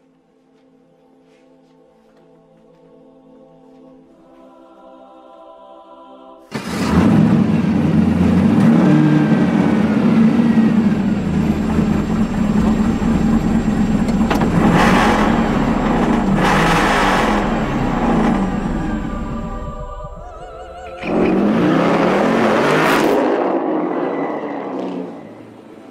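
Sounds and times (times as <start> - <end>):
car engine starting and revving: 6.5 - 25.7.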